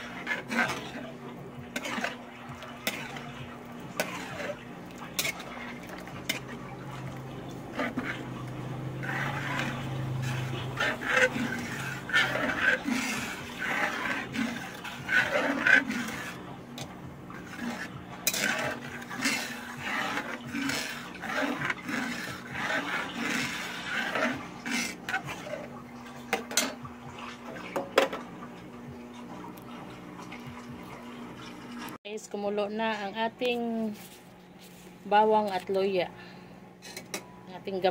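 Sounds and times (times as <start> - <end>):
metal spatula scraping a wok: 0.0 - 25.7.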